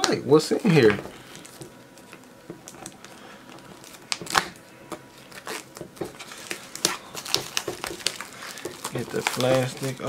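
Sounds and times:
plastic shrink-wrap crinkling and tearing: 0.8s - 10.0s.

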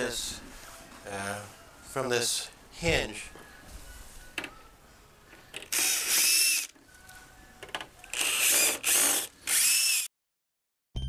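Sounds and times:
power drill motor whining: 5.7s - 6.7s, 8.1s - 10.1s.

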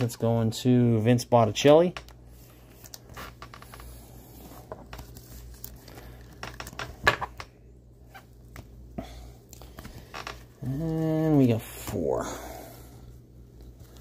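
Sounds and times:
plastic sleeve rustling: 2.1s - 8.8s, 13.0s - 14.0s.

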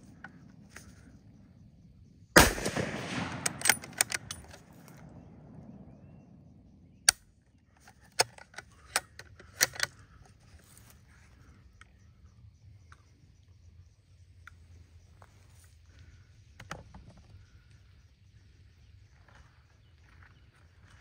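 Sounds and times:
sharp clicks: 2.4s - 5.6s, 7.0s - 10.7s
rifle shot: 2.4s - 7.2s.

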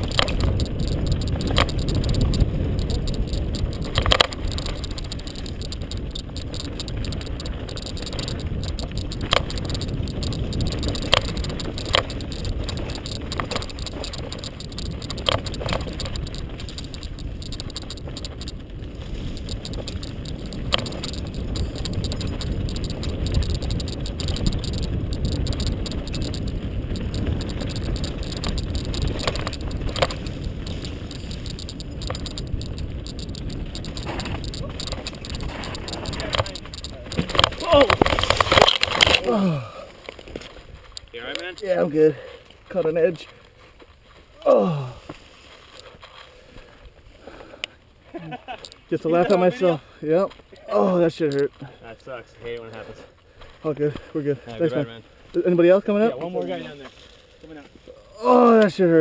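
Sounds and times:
wind on microphone: 0.0s - 41.6s
tyres rumbling: 0.0s - 43.3s
mountain bike rattling: 0.0s - 59.0s.

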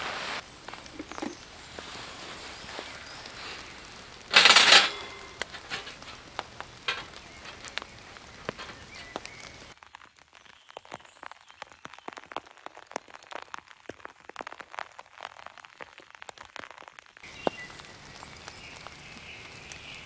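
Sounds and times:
raindrops dripping on tarp: 0.0s - 20.0s
metal grill grate clatter: 3.4s - 9.3s.

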